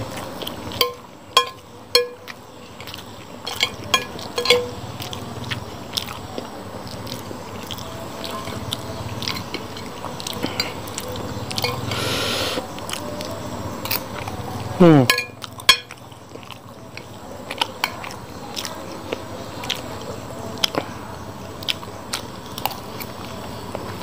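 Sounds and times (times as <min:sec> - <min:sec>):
chewing: 0:00.0 - 0:24.0
metal spoon clinking on glass plate: 0:00.7 - 0:02.3, 0:03.4 - 0:04.8, 0:11.5 - 0:11.9, 0:15.0 - 0:16.0.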